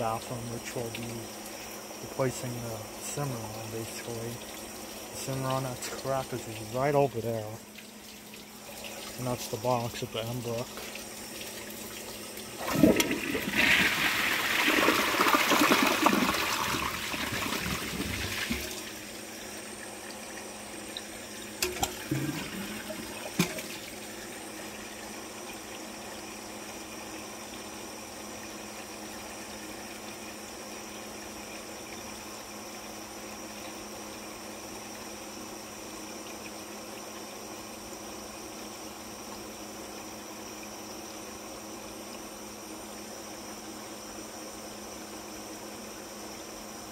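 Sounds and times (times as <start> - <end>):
toilet flushing: 0.0 - 33.9
faint hiss of refilling: 0.0 - 34.9
water gurgling in toilet bowl: 0.0 - 43.9.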